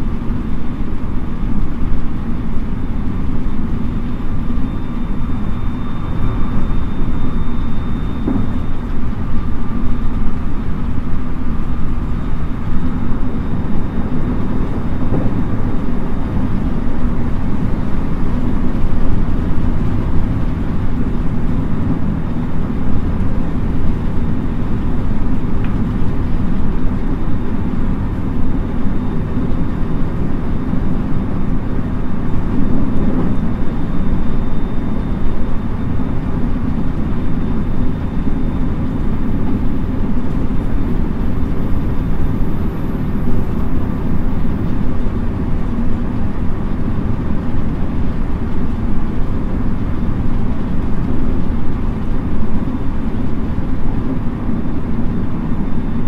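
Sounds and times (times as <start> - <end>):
faint high electric motor whine: 0.0 - 56.0
train wheels rumbling on rail: 8.2 - 34.5.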